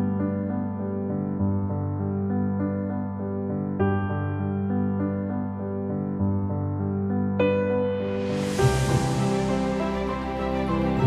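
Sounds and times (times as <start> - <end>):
soft ambient music: 0.0 - 11.0.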